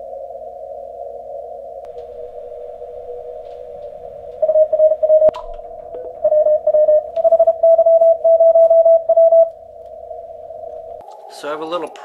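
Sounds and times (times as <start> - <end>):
receiver hiss: 0.0 - 12.0
steady lower tone: 0.0 - 12.0
morse code tone: 3.4 - 9.6.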